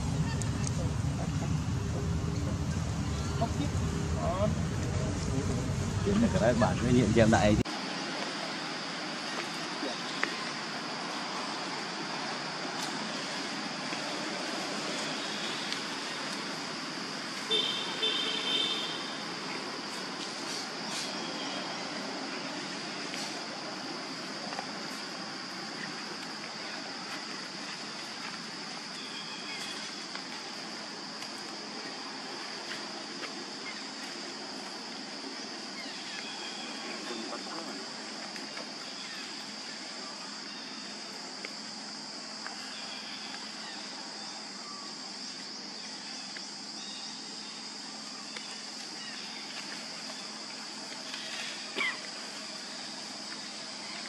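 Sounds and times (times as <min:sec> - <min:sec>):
high-pitched drone: 0:00.0 - 0:07.6
insects droning: 0:00.0 - 0:54.0
outdoor hiss: 0:00.0 - 0:54.0.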